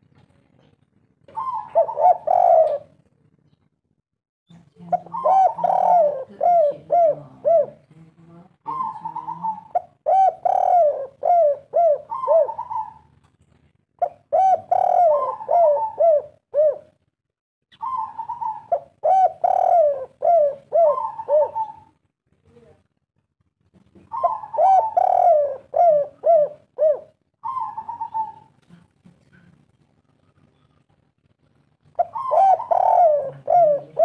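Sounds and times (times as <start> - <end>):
dove cooing: 1.3 - 3.0, 4.9 - 7.9, 8.7 - 13.2, 14.0 - 17.0, 17.7 - 22.0, 24.1 - 28.6, 31.9 - 34.0.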